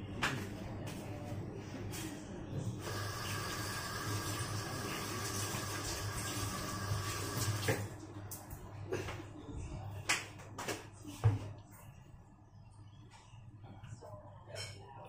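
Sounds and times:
tap water running: 0:02.8 - 0:08.0.

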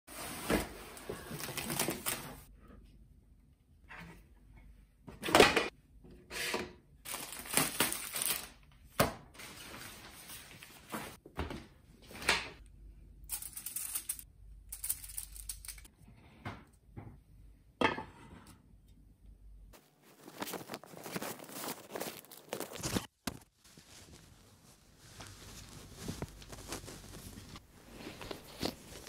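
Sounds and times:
aluminium foil crinkling: 0:07.1 - 0:08.6, 0:20.0 - 0:29.0.

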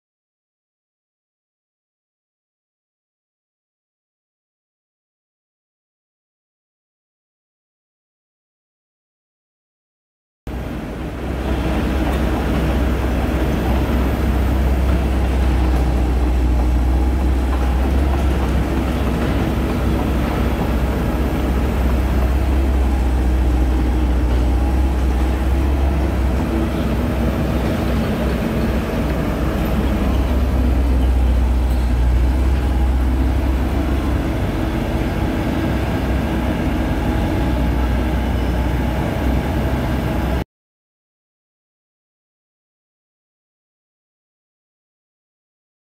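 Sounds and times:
excavator diesel engine idling: 0:10.5 - 0:40.4.

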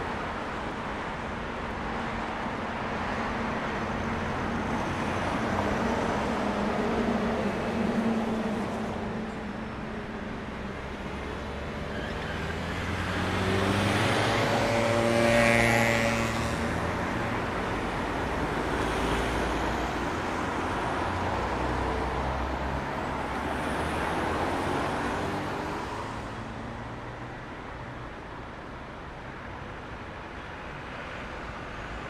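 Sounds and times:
cars driving past: 0:10.8 - 0:27.0.

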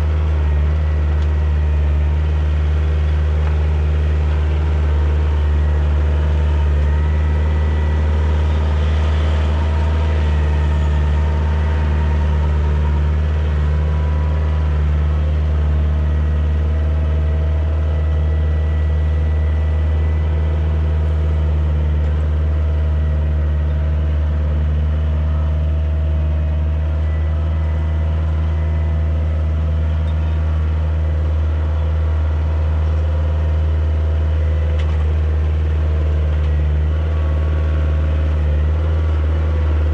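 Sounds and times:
tractor diesel engine running: 0:00.0 - 0:39.9.

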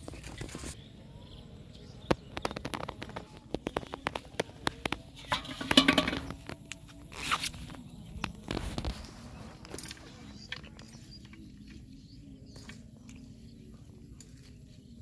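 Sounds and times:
metal pot clanking on ground: 0:05.1 - 0:06.6.

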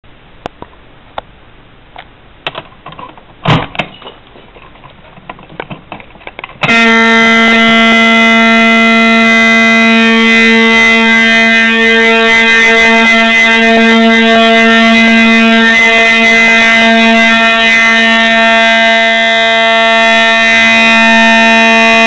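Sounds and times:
fire alarm horn steady tone: 0:06.6 - 0:22.0.

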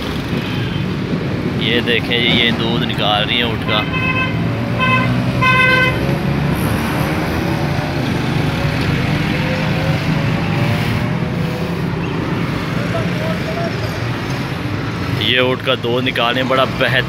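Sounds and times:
road traffic rumbling: 0:00.0 - 0:17.0
vehicle horn toots: 0:03.7 - 0:06.1.

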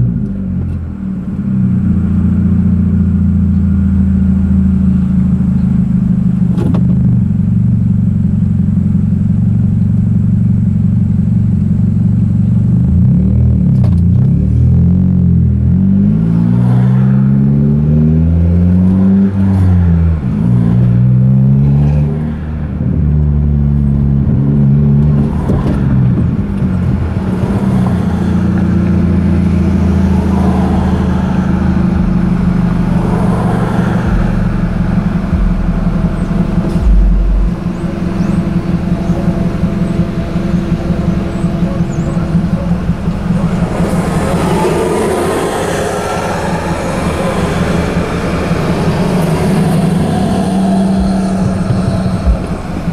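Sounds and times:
car engine revving through gears: 0:12.0 - 0:52.9.

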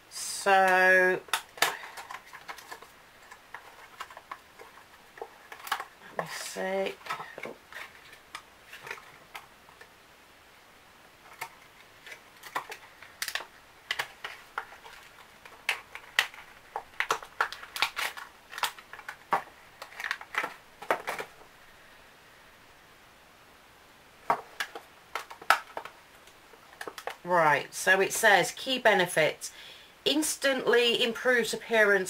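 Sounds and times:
packaging crackling and tapping: 0:00.6 - 0:09.9, 0:11.2 - 0:21.5, 0:24.2 - 0:27.3.

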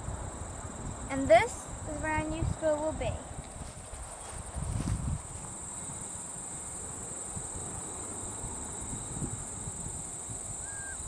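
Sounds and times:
high-pitched insect chorus: 0:00.0 - 0:11.0
wind rumble on microphone: 0:00.0 - 0:11.0
short whistle: 0:10.6 - 0:11.0.

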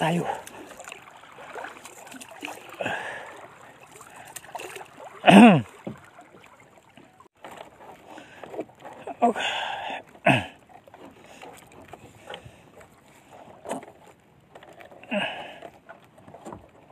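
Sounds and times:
water splashing against hull: 0:00.0 - 0:16.9.

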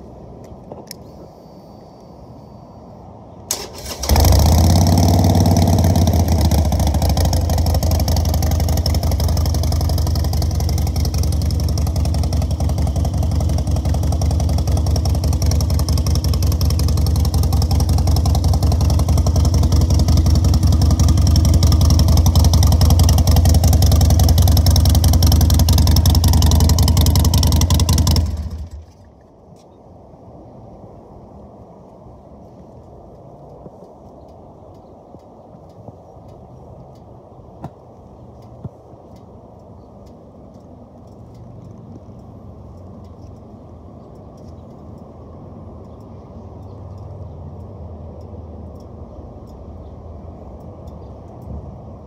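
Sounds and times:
motorcycle starter cranking: 0:03.5 - 0:09.0
motorcycle engine idling: 0:03.8 - 0:29.0.

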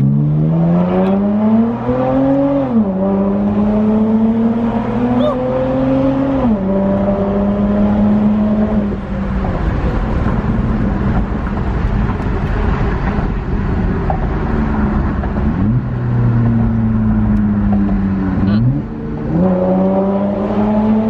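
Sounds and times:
car exhaust rumble from inside: 0:06.6 - 0:19.2.

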